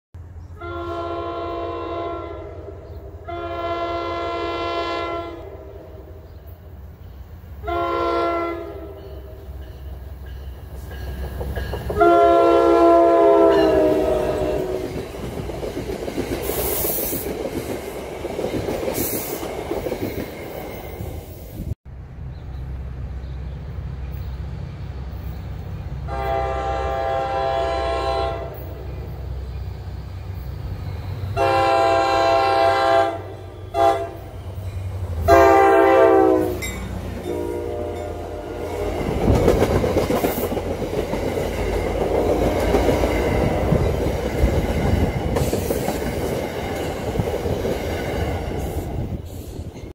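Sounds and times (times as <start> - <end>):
train passing with wheel clatter: 0.2 - 49.9
train horn blasts: 0.5 - 6.2, 7.6 - 9.6, 11.9 - 15.0, 26.0 - 28.9, 31.4 - 34.4, 35.2 - 39.4.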